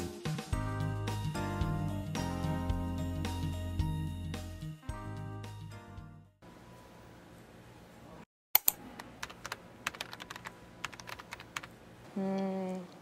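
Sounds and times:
computer keyboard typing: 8.6 - 11.7.

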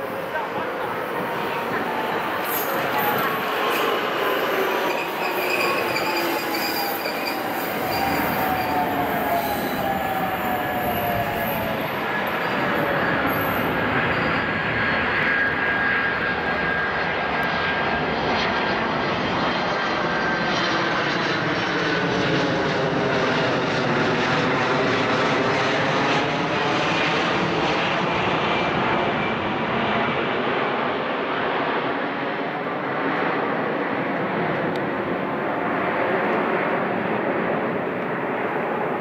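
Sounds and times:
electric train humming: 0.0 - 13.8.

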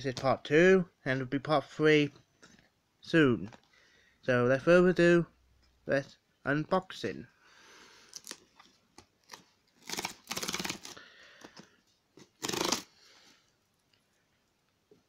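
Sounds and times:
cardboard box tearing: 9.3 - 11.0, 12.2 - 12.9.

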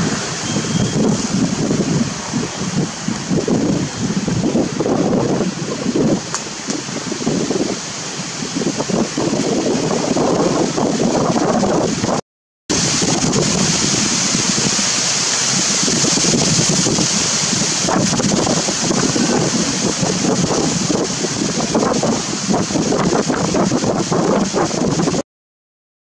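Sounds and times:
wind buffeting microphone: 0.0 - 25.2
high hiss: 12.7 - 23.0.

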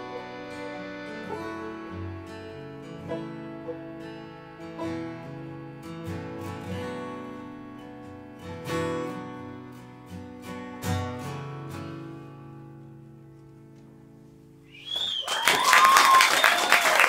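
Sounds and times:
banjo picking: 0.0 - 9.4
harmonium chords: 0.0 - 11.3
acoustic guitar strumming: 0.0 - 14.7.

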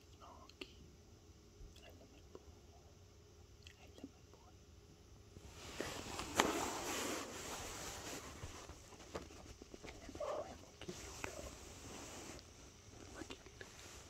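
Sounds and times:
rustling and scuffing: 5.4 - 9.7.

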